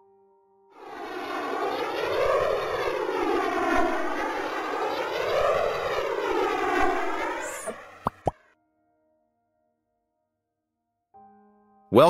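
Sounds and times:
airplane engine drone: 0.8 - 8.3.

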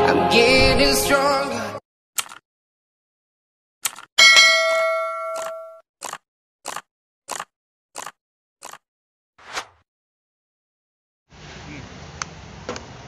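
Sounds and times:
short clicks: 2.2 - 2.4, 3.8 - 4.1
bright bell ding: 4.2 - 5.8.

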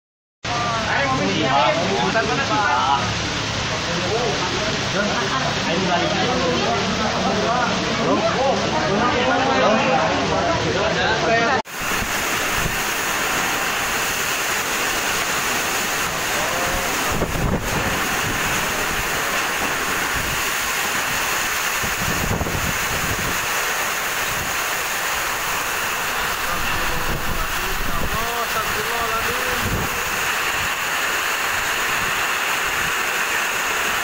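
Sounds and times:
heavy rain pouring: 0.5 - 34.0
wind buffeting microphone: 16.8 - 24.7, 26.0 - 30.9.

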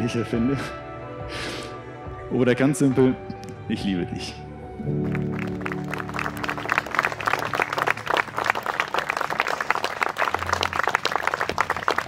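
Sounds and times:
crowd applauding: 4.9 - 12.0.

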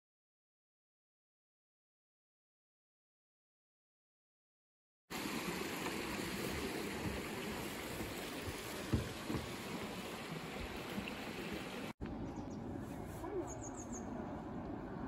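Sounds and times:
water rushing: 5.1 - 12.0.

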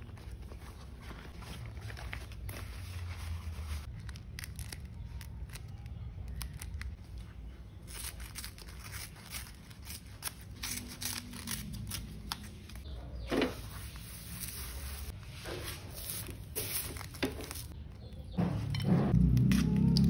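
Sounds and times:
leaf parcel rubbing: 0.0 - 5.6, 13.4 - 17.8
stiff leaves crinkling: 0.0 - 7.0, 7.9 - 12.9, 15.8 - 17.8
scissors snipping leaves: 7.9 - 12.5.

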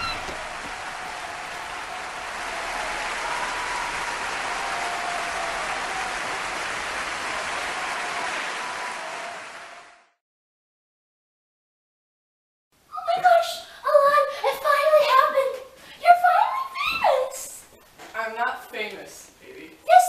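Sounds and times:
crowd applause: 0.0 - 10.2.

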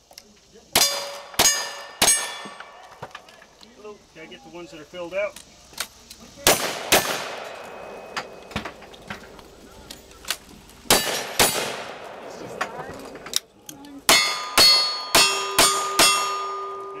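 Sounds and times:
steel target ringing: 0.8 - 2.9, 14.1 - 17.0
revolver gunshots: 0.8 - 3.0, 6.4 - 8.8, 10.8 - 12.6.

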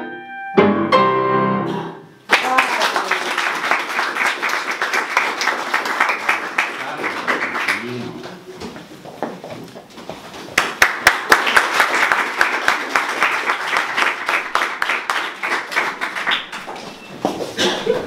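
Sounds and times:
small audience applauding: 2.3 - 8.5, 10.5 - 18.0.

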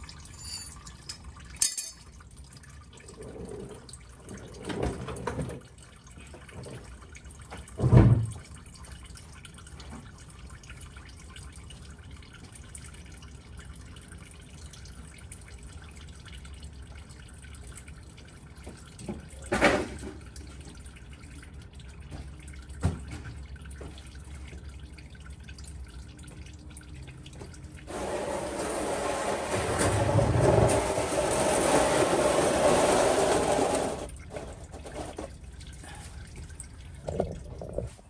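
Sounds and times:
oil trickling into a pan: 0.0 - 4.7, 5.3 - 28.0.

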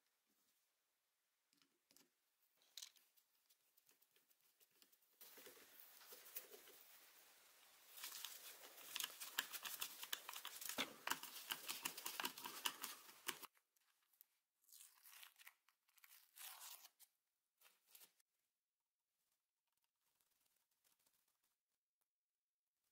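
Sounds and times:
scratchy plastic crackling and clicking: 7.9 - 13.6.

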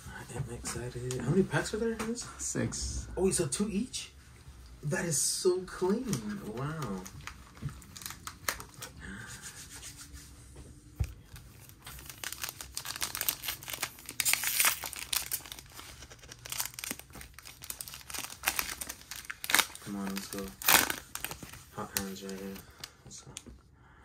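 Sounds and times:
plastic wrapper crinkling: 5.8 - 9.0, 11.0 - 23.0.

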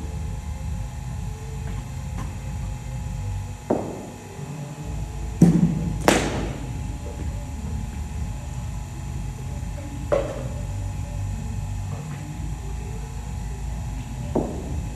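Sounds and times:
cricket ball bouncing on pitch: 3.6 - 4.2, 5.4 - 6.7, 10.1 - 10.5, 14.3 - 14.7
cricket bat hitting ball: 3.6 - 4.2, 5.4 - 6.7.

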